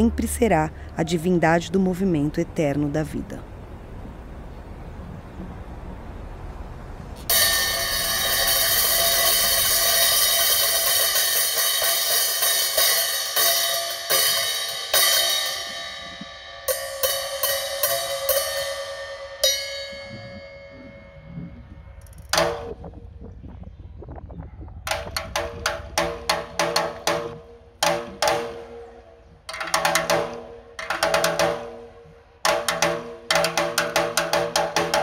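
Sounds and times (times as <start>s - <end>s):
sharp percussion hits: 7.2s - 22.9s, 24.9s - 35.0s
cymbals ringing: 7.3s - 21.4s.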